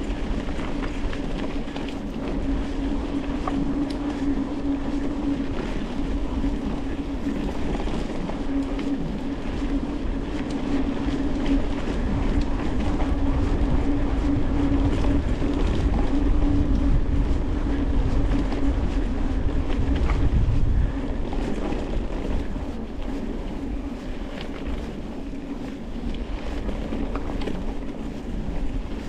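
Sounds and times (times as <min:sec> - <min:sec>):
bike rattling and clicking: 0:00.0 - 0:29.0
bike tyres rumbling on rough ground: 0:00.0 - 0:29.0
steady hum: 0:00.0 - 0:29.0.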